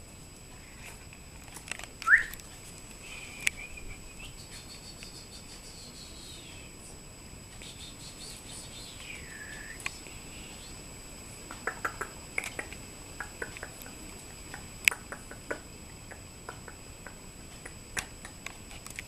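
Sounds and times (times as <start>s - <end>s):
faint high-pitched whine: 0.0s - 19.0s
steady hiss: 0.0s - 19.0s
puppies clicking and tapping: 11.5s - 19.0s.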